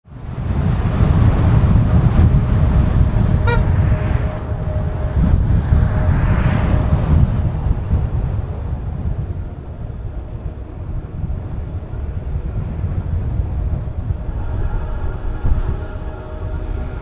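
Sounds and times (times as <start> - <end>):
wind buffeting microphone: 0.1 - 17.0
sharp horn toot: 3.0 - 7.2.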